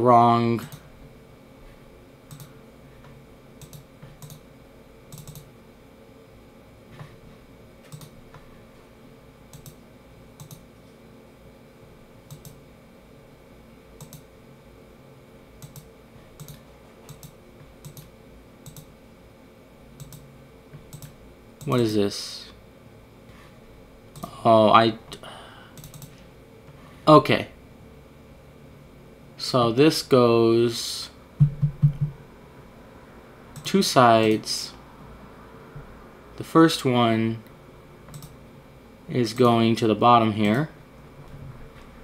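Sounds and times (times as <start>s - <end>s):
faint steady hum: 0.0s - 42.0s
computer mouse clicks: 2.3s - 2.5s, 3.6s - 4.4s, 5.1s - 5.5s, 7.8s - 8.4s, 9.5s - 9.8s, 10.4s - 10.6s, 12.3s - 12.6s, 14.0s - 14.3s, 15.6s - 18.9s, 20.0s - 20.3s, 20.9s - 21.8s, 25.8s - 26.2s, 38.1s - 38.4s.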